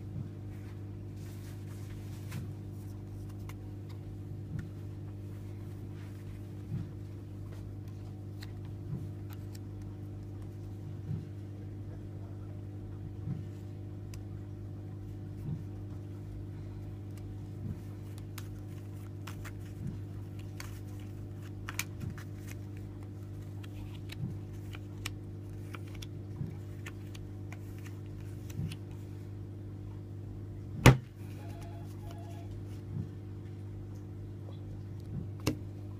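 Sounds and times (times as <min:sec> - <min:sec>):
steady electrical hum: 0:00.0 - 0:35.9
playing cards clicking on mat: 0:17.1 - 0:22.8.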